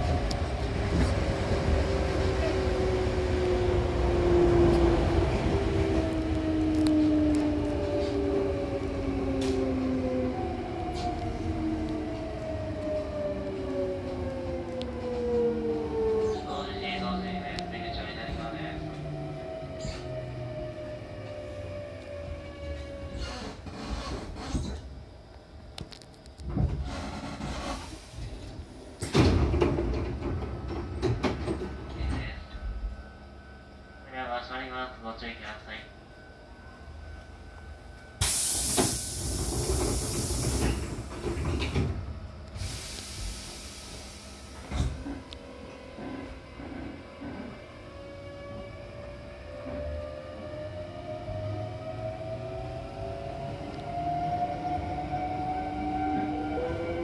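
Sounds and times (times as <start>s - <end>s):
wheels rumbling on rail: 0.0s - 25.2s, 25.9s - 33.8s, 36.7s - 57.0s
train door clicks: 25.8s - 32.3s, 38.2s - 43.3s.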